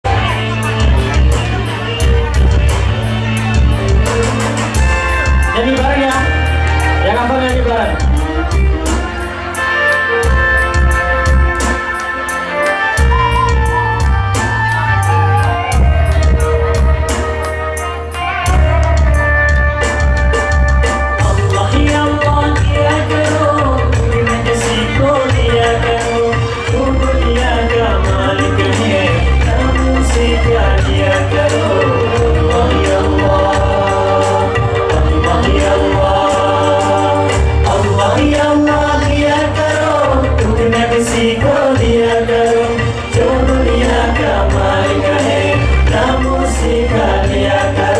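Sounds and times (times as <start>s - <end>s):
live band music: 0.0s - 47.9s
drums and cymbals: 0.1s - 47.9s
deep bass notes: 18.5s - 47.9s
man singing through pa: 21.2s - 47.9s.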